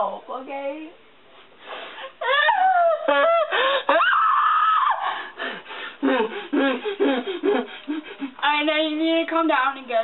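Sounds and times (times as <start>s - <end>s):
woman laughing: 2.2s - 4.2s, 6.0s - 8.4s
woman shrieking and squealing: 2.2s - 5.4s.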